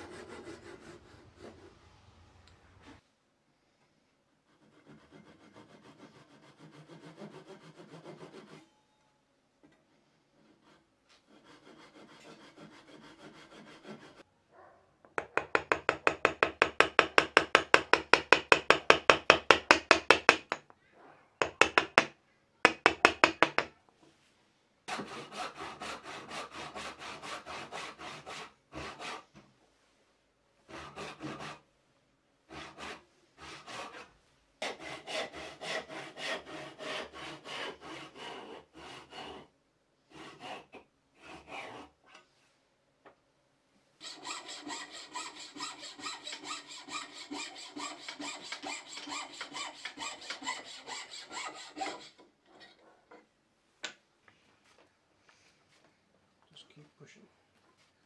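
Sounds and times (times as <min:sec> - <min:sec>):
mallet tapping chisel into wood: 0:15.1 - 0:20.7, 0:21.4 - 0:22.1, 0:22.7 - 0:23.7
backsaw cutting wood: 0:34.6 - 0:39.4, 0:44.0 - 0:52.3
coping saw strokes: 0:44.0 - 0:52.2.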